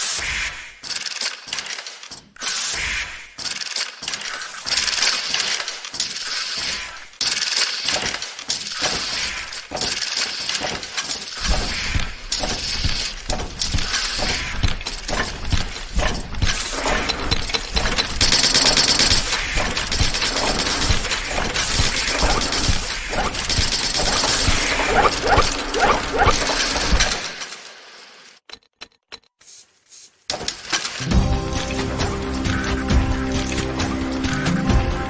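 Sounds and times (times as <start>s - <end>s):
machinery clicking and clattering: 0.2s - 29.3s, 30.3s - 35.0s.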